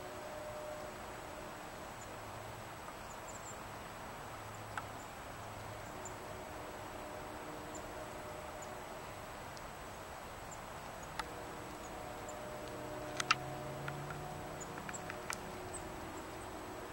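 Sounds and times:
faint hum: 0:00.0 - 0:16.9
low drone: 0:00.0 - 0:16.9
light clicks and ticks: 0:12.6 - 0:15.8.

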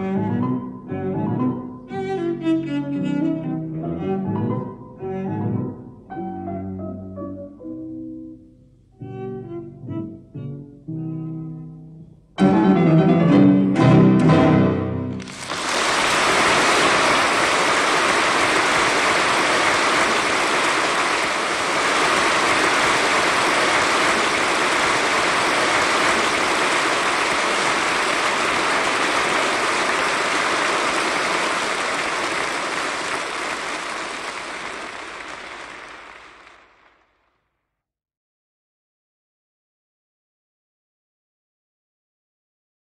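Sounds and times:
audience applauding: 0:15.2 - 0:37.0.

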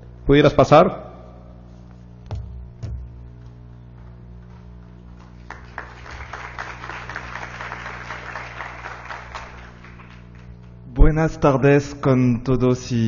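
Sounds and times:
low hum: 0:00.9 - 0:11.6
audience applauding: 0:04.9 - 0:10.8.

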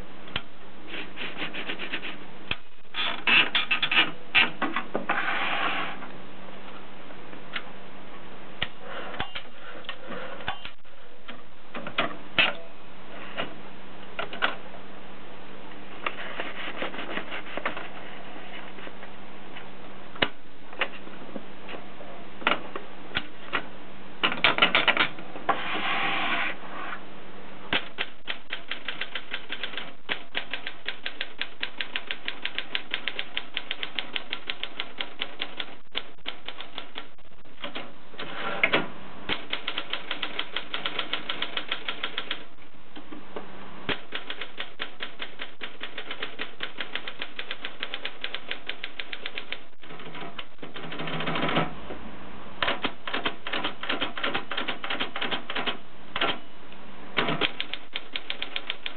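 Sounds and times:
manual typewriter typing: 0:27.8 - 0:37.8, 0:39.3 - 0:42.5, 0:43.9 - 0:51.7, 0:52.6 - 0:56.4, 0:57.2 - 0:58.9.

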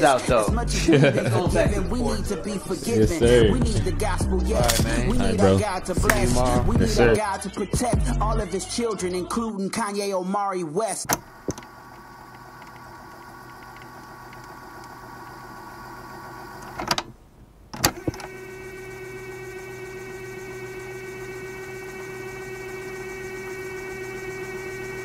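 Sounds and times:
sharp click: 0:04.6 - 0:04.9
electronic hum and whine: 0:11.2 - 0:16.8, 0:17.9 - 0:25.0.

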